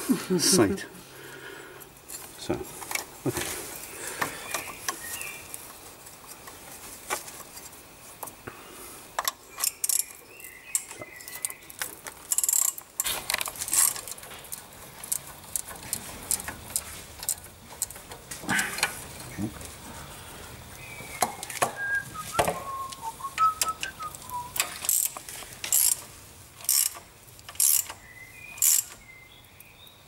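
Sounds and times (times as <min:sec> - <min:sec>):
socket wrench clicking: 0:09.2 - 0:18.0, 0:24.5 - 0:28.0, 0:28.6 - 0:29.0.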